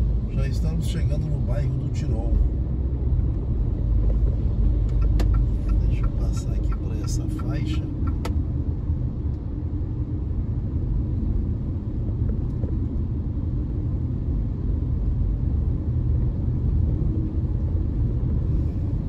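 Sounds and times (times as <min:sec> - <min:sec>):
car driving on wet road: 0:00.0 - 0:09.5.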